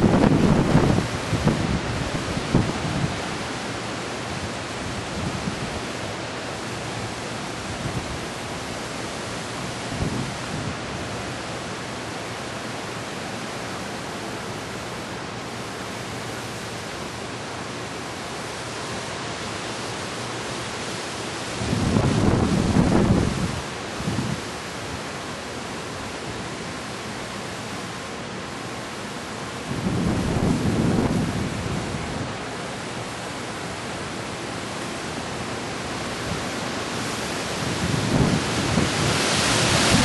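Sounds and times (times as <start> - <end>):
strong wind rushing: 0.0 - 3.2, 21.6 - 24.4, 29.6 - 32.4, 37.6 - 40.0
wind gusts buffeting microphone: 0.0 - 3.6, 4.2 - 6.0, 7.5 - 11.2, 21.5 - 25.1, 29.5 - 34.0, 36.0 - 40.0.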